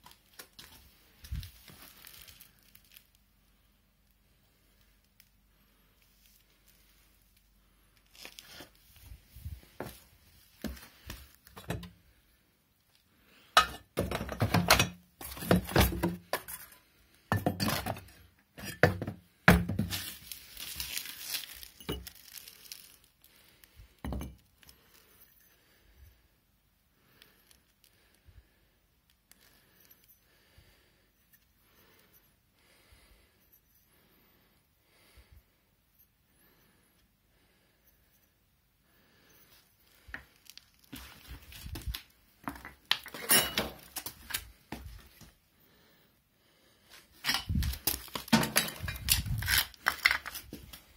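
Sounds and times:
metal parts clinking and rattling: 0:42.9 - 0:44.4, 0:47.2 - 0:50.5.

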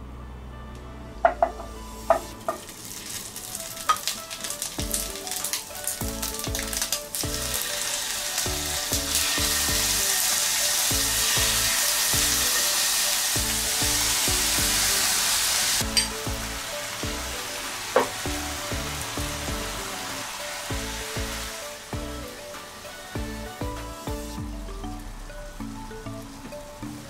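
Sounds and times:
beef sizzling in frying pan: 0:01.9 - 0:24.4
spatula tapping on pan: 0:18.0 - 0:18.2.

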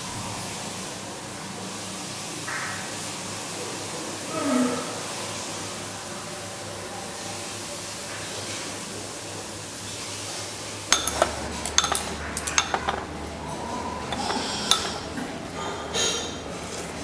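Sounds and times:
dishes and cutlery clinking: 0:10.9 - 0:16.9.

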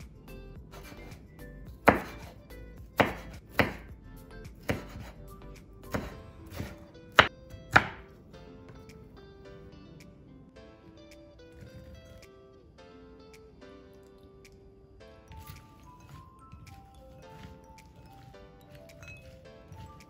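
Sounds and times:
soft background music: 0:00.0 - 0:20.0
knife chopping on cutting board: 0:01.8 - 0:02.4, 0:03.0 - 0:03.9, 0:04.6 - 0:05.2, 0:05.9 - 0:08.1.

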